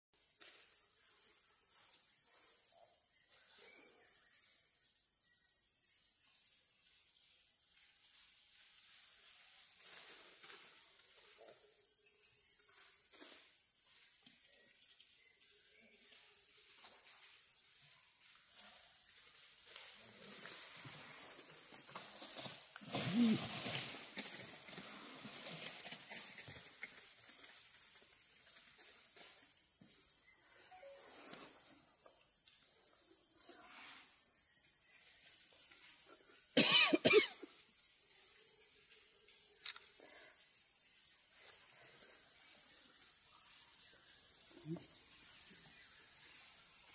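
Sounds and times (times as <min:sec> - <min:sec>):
forest insects droning: 0:00.2 - 0:46.9
person coughing: 0:36.6 - 0:37.5.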